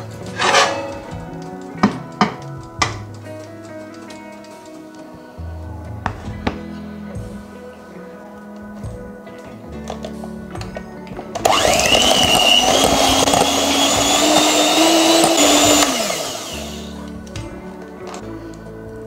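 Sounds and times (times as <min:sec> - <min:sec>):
background music: 0:00.0 - 0:19.0
electric hand mixer whining: 0:11.4 - 0:17.1.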